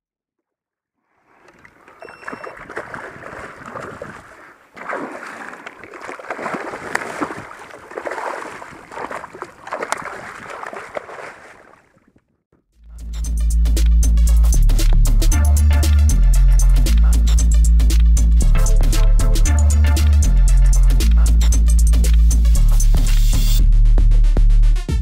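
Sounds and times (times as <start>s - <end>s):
fish splashing in water: 1.2s - 12.2s.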